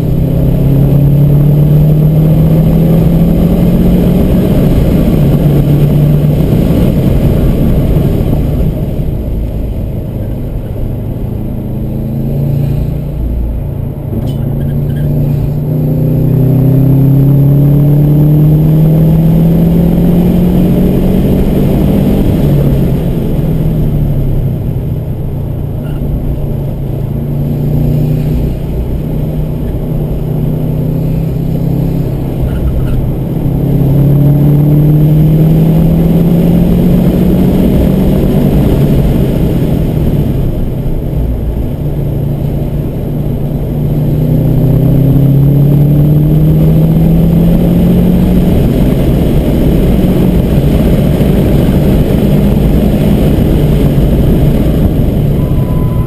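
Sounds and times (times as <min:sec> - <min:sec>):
car engine accelerating: 0:00.0 - 0:56.0.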